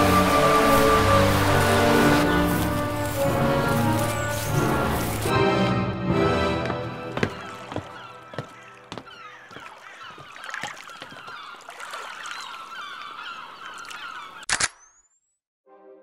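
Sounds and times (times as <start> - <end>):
geese honking: 0.0 - 5.4.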